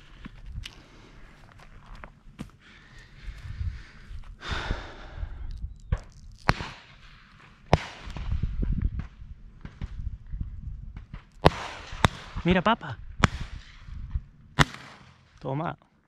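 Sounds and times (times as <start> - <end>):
low wind rumble: 0.0 - 15.4
sharp cracks: 5.4 - 10.0, 10.9 - 15.6.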